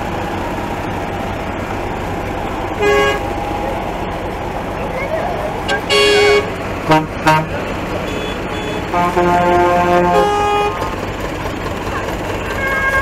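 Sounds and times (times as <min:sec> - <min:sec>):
tractor engines running: 0:00.0 - 0:13.0
vehicle horns tooting: 0:02.8 - 0:03.2, 0:05.7 - 0:10.9, 0:12.5 - 0:13.0.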